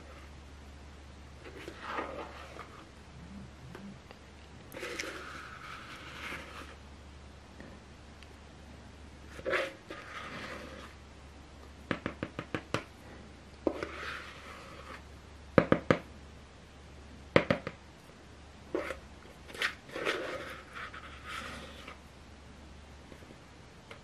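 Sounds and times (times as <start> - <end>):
batter scraped from plastic bowl: 1.4 - 2.9, 4.7 - 6.8, 9.3 - 11.0, 13.7 - 15.0, 18.7 - 22.0.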